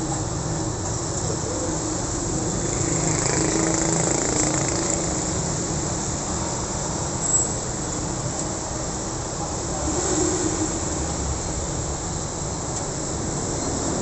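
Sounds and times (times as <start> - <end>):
motor scooters passing: 1.4 - 6.8.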